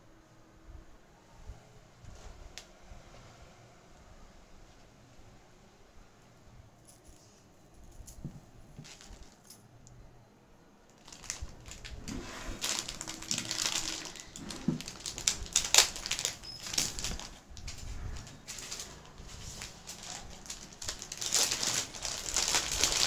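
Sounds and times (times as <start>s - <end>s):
paper wrapping rustling: 8.7s - 9.6s, 10.9s - 23.0s.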